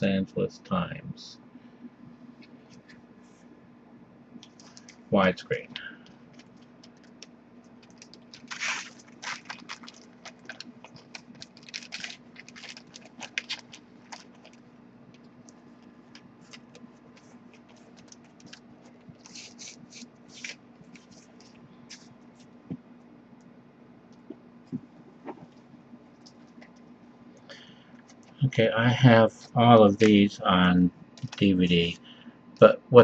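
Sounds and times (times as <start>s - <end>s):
faint steady hum: 0.0s - 33.0s
plastic bag crinkling: 4.4s - 5.1s, 6.2s - 22.5s, 31.2s - 31.5s.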